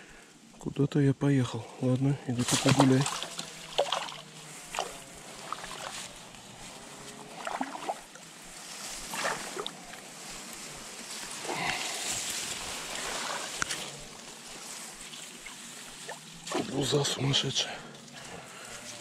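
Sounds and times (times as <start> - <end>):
water splashes: 2.3 - 6.2, 7.3 - 9.9, 11.2 - 17.2
river water washing: 2.4 - 17.1.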